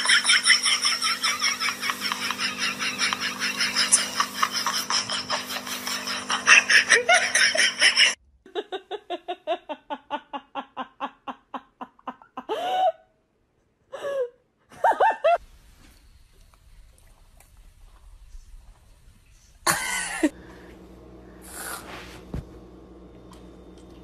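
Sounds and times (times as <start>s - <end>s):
small child laughing: 0.0s - 12.9s.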